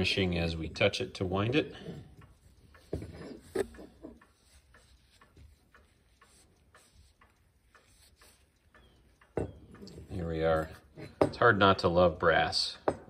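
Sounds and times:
cloth rubbing on metal: 2.4 - 8.6.

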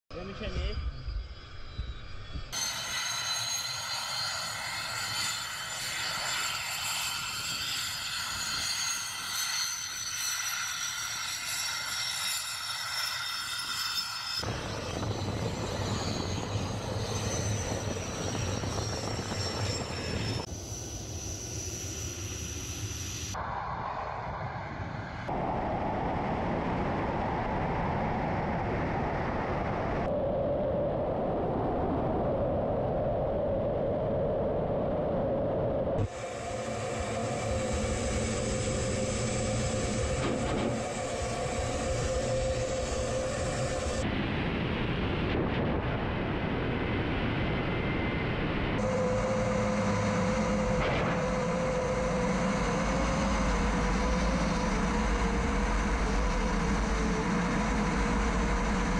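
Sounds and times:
jet engine whine: 0.1 - 58.9
jet rushing in flight: 0.1 - 58.9
deep rumble: 22.2 - 58.9.

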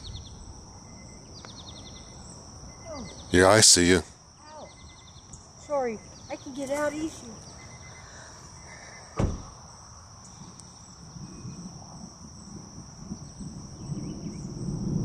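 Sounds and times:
insects droning: 0.0 - 15.0
sharp thump: 9.2 - 9.6.

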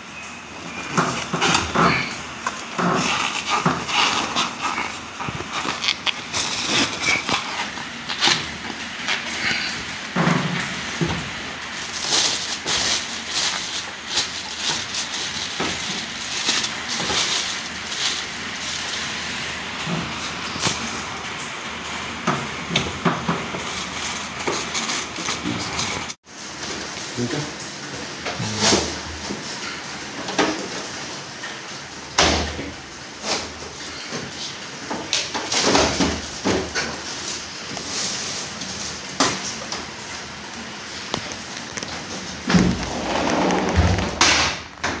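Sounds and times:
plastic wrapping crinkling: 0.6 - 21.4, 36.2 - 45.0
plastic film rustling: 0.6 - 27.3, 33.2 - 45.0.

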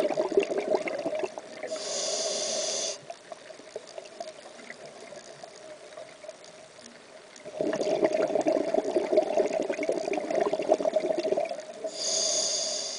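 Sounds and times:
bubbles gurgling from regulator: 0.0 - 1.8, 7.4 - 12.0
steady hum: 0.0 - 3.3
faint crackling ticks: 1.2 - 7.5.

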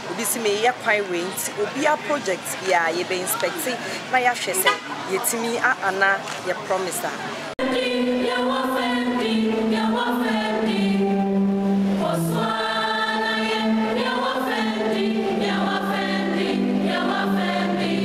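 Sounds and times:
choir singing long notes: 7.6 - 18.0.

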